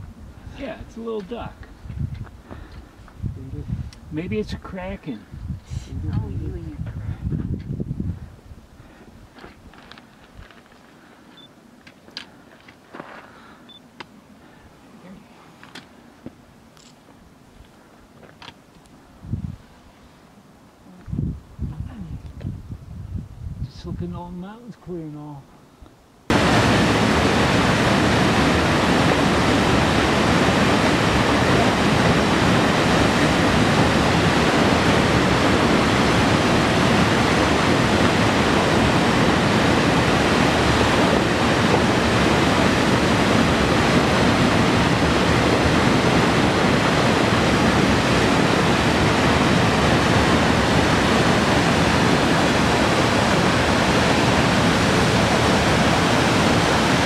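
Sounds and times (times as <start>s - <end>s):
waterfall rushing: 26.3s - 57.0s.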